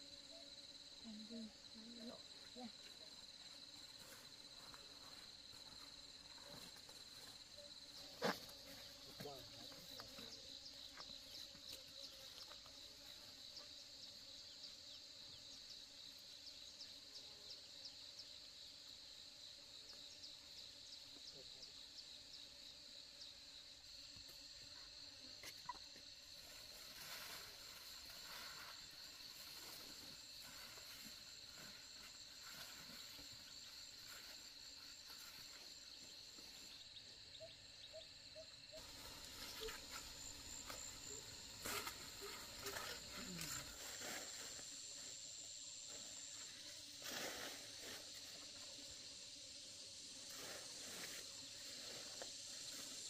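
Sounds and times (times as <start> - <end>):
insects trilling: 0.0 - 53.0.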